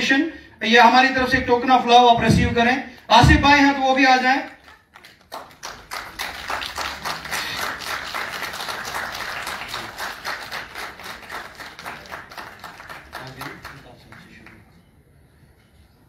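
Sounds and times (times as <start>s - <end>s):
audience applause: 4.6s - 14.6s.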